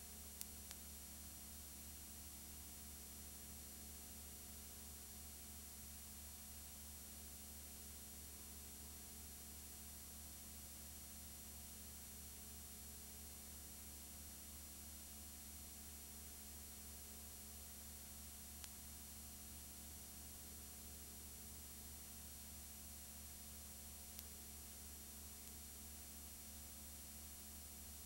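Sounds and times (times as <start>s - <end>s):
low electrical hum and hiss: 0.0s - 28.0s
faint click: 0.4s - 0.9s, 18.6s - 18.8s, 24.1s - 24.4s, 25.4s - 25.7s.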